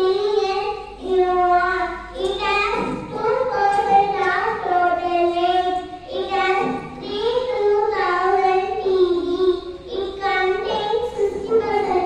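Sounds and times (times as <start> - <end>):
girl singing into microphone: 0.0 - 12.0.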